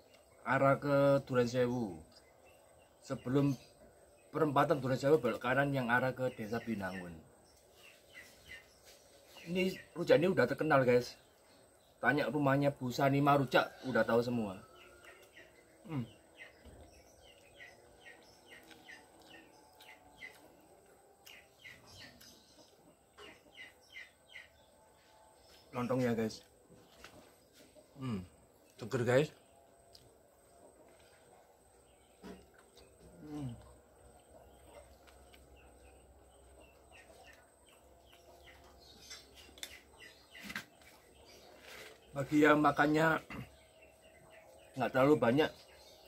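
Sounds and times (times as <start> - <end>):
faint bird chirping: 0.0 - 46.0
quiet chewing: 14.6 - 23.8, 26.3 - 42.2.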